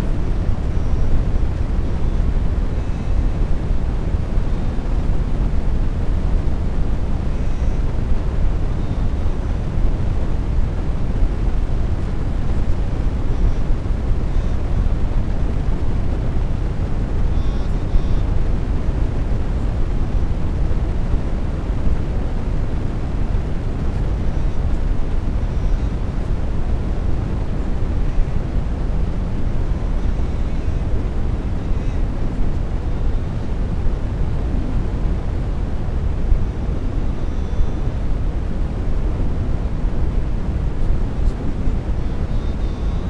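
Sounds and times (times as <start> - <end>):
low rumbling noise: 0.0 - 43.0
faint high chirp: 42.2 - 43.0.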